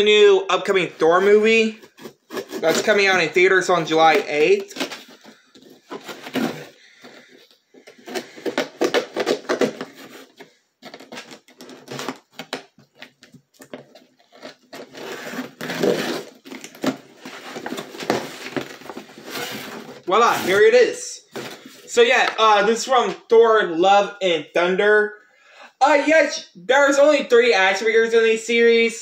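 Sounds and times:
packaging rustling and crinkling: 0:04.0 - 0:20.6.

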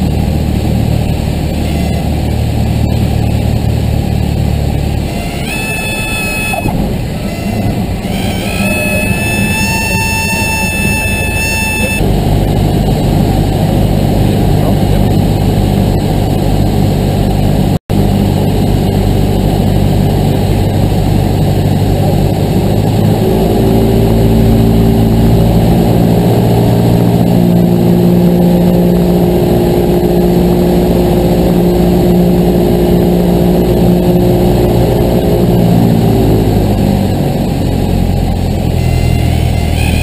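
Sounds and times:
heavy wind rush: 0:00.0 - 0:40.0
propeller plane engine: 0:00.0 - 0:40.0.

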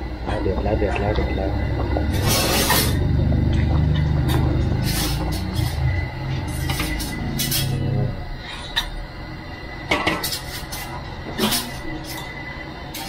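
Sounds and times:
metal ladle scraping a wok: 0:02.1 - 0:03.0, 0:04.7 - 0:08.8.

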